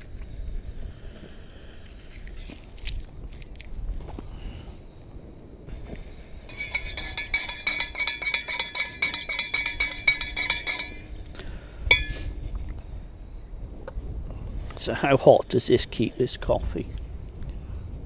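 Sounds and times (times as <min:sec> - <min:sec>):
spoon clinking in metal mug: 0:06.5 - 0:11.1, 0:11.9 - 0:12.3.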